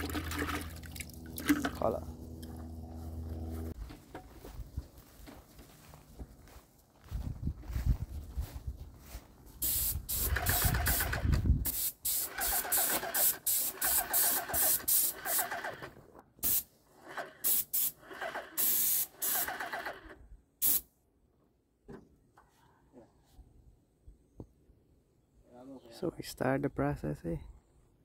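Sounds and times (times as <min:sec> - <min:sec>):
spray gun hissing spurts: 0:09.6 - 0:15.7, 0:16.4 - 0:19.9, 0:20.6 - 0:20.8.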